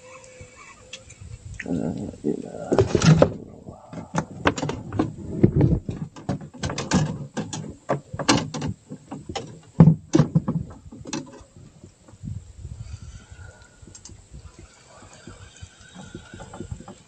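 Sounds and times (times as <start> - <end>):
hard objects knocking and clattering: 2.8 - 11.5.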